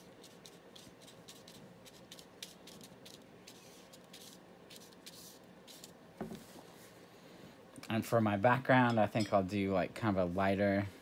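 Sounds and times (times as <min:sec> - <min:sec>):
paintbrush strokes on paper: 0:00.0 - 0:07.0.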